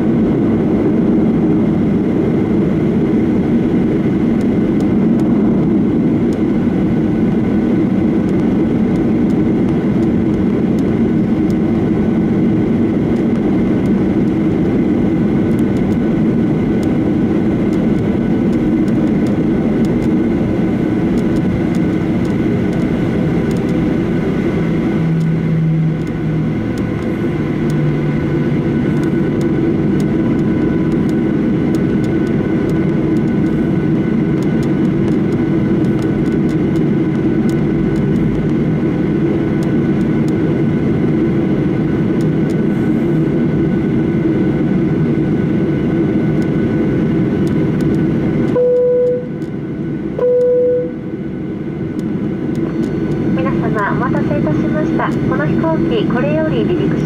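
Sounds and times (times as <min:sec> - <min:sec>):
cabin air rush: 0:00.0 - 0:48.5, 0:50.8 - 0:57.0
jet engines idling hum: 0:00.0 - 0:57.0
steady whining tones: 0:00.0 - 0:57.0.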